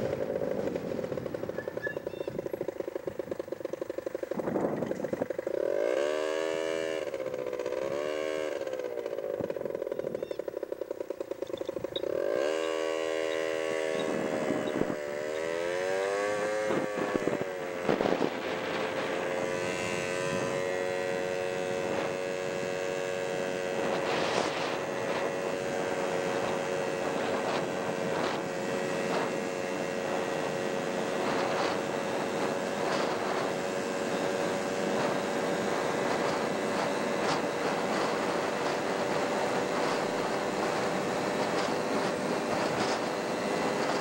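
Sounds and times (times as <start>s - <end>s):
wind noise: 0.0s - 3.6s, 4.2s - 5.5s, 11.5s - 44.0s
motorcycle engine: 0.0s - 44.0s.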